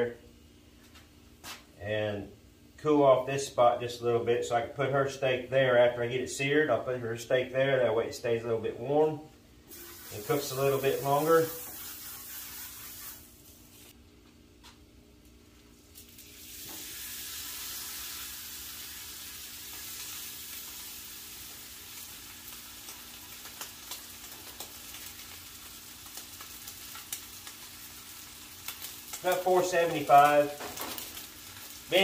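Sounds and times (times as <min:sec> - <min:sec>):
steak sizzling on a griddle: 0:09.7 - 0:13.9, 0:15.9 - 0:32.0.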